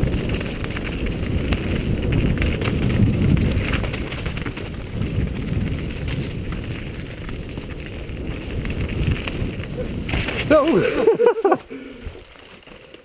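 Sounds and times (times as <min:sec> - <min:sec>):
wind buffeting microphone: 0:00.0 - 0:12.3
bike clicks and rattles: 0:00.0 - 0:13.0
tyres rumbling on dirt trail: 0:00.0 - 0:13.0.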